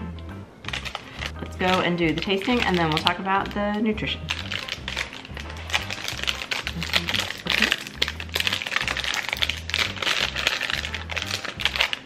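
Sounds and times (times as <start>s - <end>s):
plastic wrapper crinkling: 0.6s - 12.0s
music with repeating bass line: 3.4s - 11.9s.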